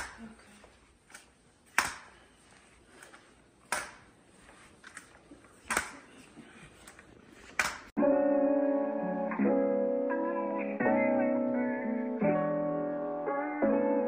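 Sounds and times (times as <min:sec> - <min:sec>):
guitar music: 0:08.0 - 0:14.0.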